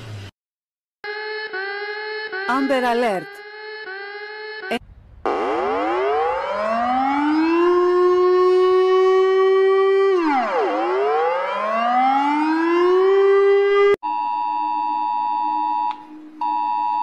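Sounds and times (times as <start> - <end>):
warning siren wailing: 1.0 - 14.0.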